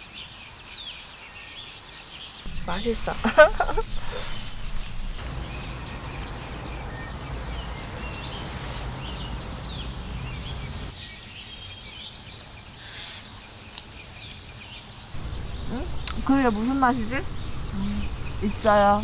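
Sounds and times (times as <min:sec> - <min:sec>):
small birds chirping and trilling: 0:00.0 - 0:19.0
low rushing noise: 0:02.5 - 0:10.9, 0:15.2 - 0:19.0.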